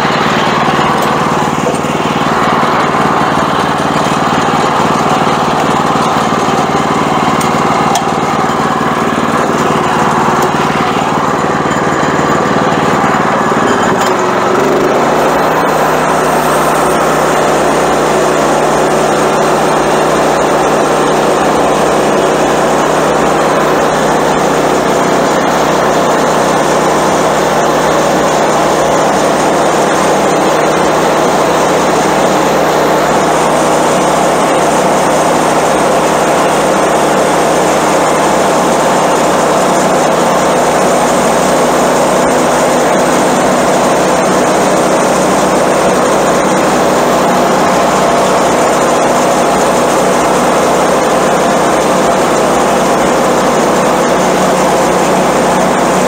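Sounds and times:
small gas engine running: 0.0s - 56.0s.

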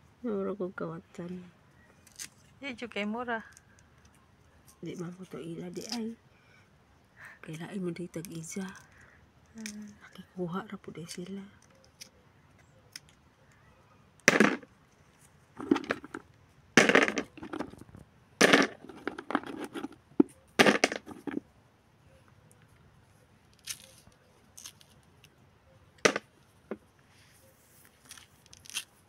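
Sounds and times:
almond hulls tearing by hand: 2.0s - 2.5s, 23.5s - 25.3s, 27.9s - 29.0s.

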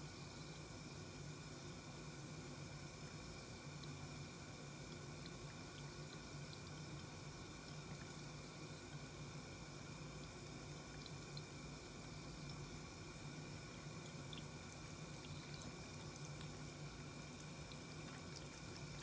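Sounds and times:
small drip ticks: 2.8s - 19.0s
water trickling into sink: 2.9s - 19.0s.

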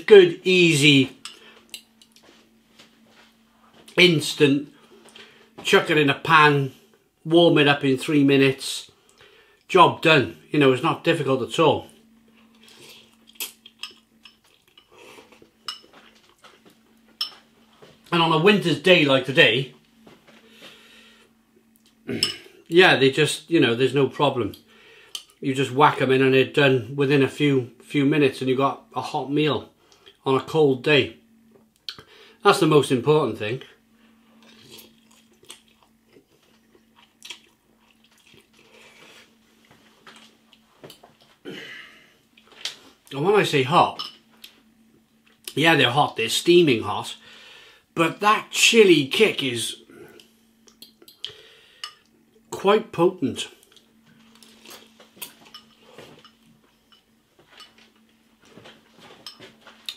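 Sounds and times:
faint steady hum: 0.0s - 59.9s
person chewing quietly: 11.9s - 18.1s, 34.3s - 43.2s, 53.6s - 59.9s.

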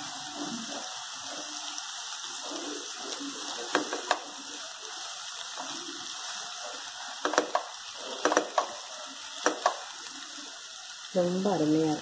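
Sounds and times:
gravy sizzling in a pan: 0.0s - 12.0s
wooden spatula tapping: 3.7s - 4.3s, 7.2s - 8.8s, 9.4s - 9.9s.

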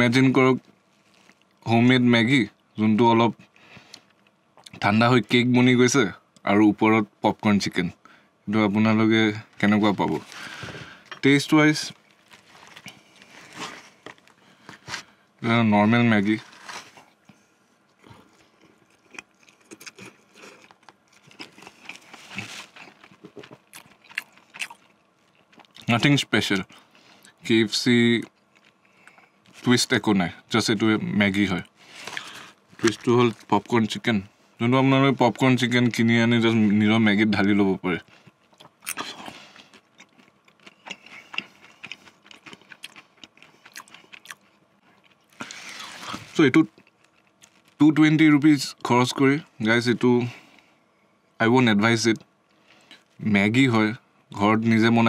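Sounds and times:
chewing with mouth clicks: 17.9s - 25.9s, 38.0s - 47.7s.

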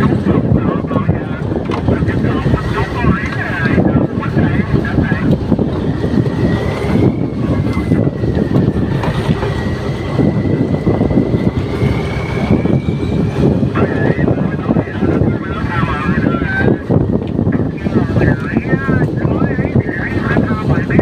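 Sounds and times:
boat engine running: 0.0s - 21.0s
water rushing along hull: 0.0s - 21.0s
wind buffeting microphone: 0.0s - 21.0s.

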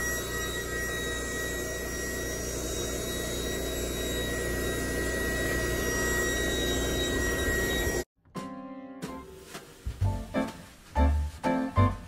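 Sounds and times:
electric pump whirring: 0.0s - 8.1s.

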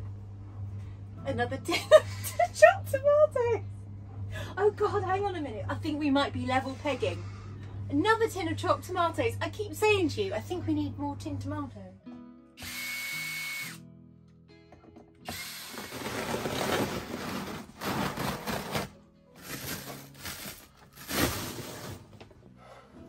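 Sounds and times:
background music: 0.0s - 23.0s
cordless drill whining: 12.6s - 13.8s, 15.2s - 16.1s
carpet lining ripping: 15.8s - 22.0s.

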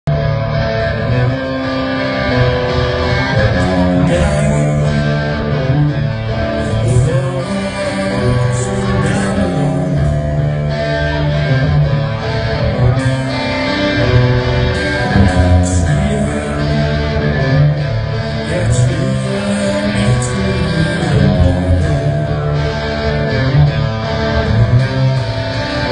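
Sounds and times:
rock band playing live: 0.1s - 25.9s.

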